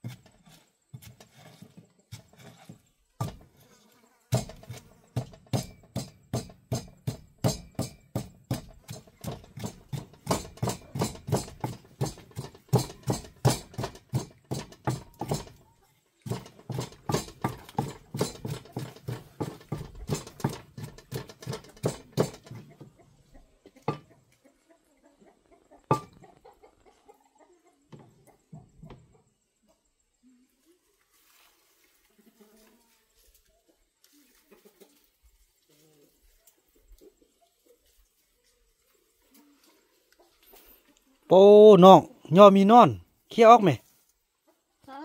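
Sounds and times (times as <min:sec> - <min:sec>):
pestle pounding in mortar: 0:04.3 - 0:15.6, 0:16.3 - 0:22.6.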